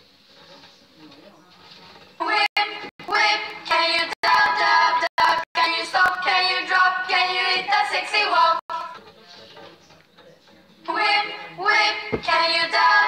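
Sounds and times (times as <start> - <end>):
girl singing a song: 2.2 - 9.0, 10.9 - 13.0.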